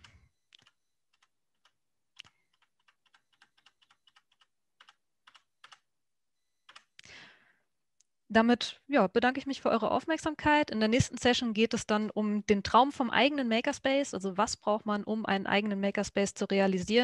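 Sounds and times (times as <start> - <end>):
keyboard keys clicking: 0.0 - 5.8, 6.7 - 6.9.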